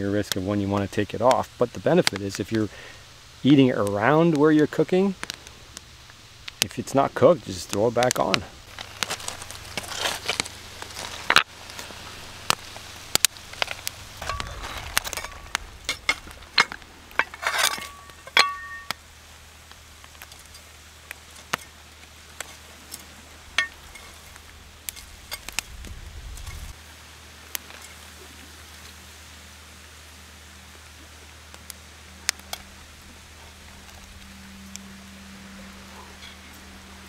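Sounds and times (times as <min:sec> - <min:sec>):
fire crackling and sizzling: 0:00.0 - 0:37.0
sharp pops: 0:07.7 - 0:19.0.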